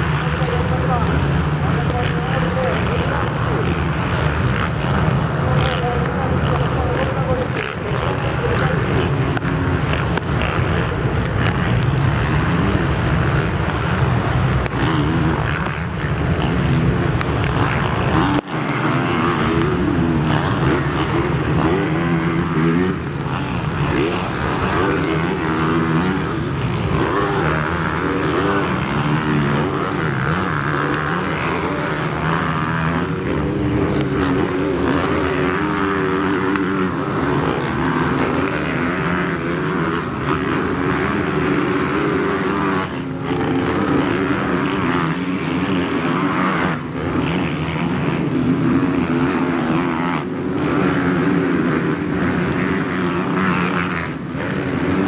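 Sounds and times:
motocross engines revving: 0:00.0 - 0:55.0.

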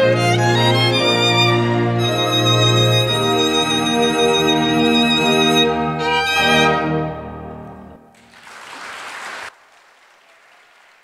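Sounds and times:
solo violin with string orchestra: 0:00.0 - 0:07.5
applause: 0:08.1 - 0:11.0.

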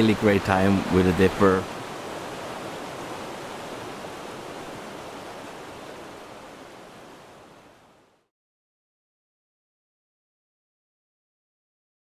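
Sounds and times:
stream water rushing: 0:00.0 - 0:08.3.

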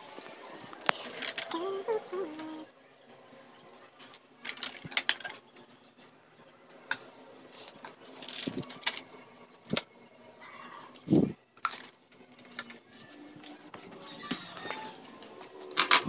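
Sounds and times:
small objects clicking and clattering: 0:00.7 - 0:01.6, 0:04.0 - 0:05.7, 0:06.9 - 0:09.9, 0:10.9 - 0:13.6, 0:15.7 - 0:16.0.

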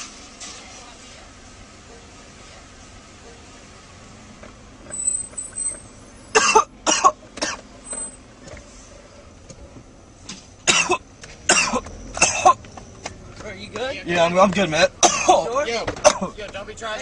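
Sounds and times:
person coughing: 0:06.4 - 0:07.6, 0:10.7 - 0:12.6, 0:15.0 - 0:15.4.

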